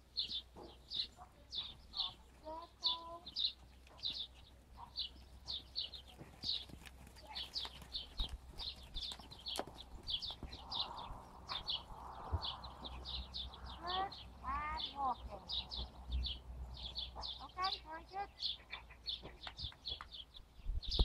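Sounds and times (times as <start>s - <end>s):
bird chirping: 0.0s - 21.0s
hoofbeats on sand: 0.2s - 13.5s.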